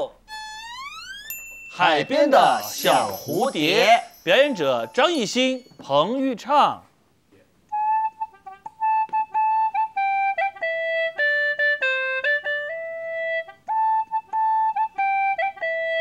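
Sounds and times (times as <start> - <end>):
gourd flute playing slow tune: 0.2 - 1.6, 7.7 - 16.0.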